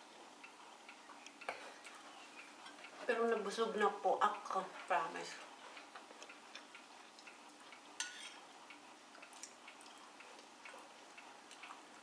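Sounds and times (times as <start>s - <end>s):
spoon clinking against porcelain bowl: 8.0s - 8.4s.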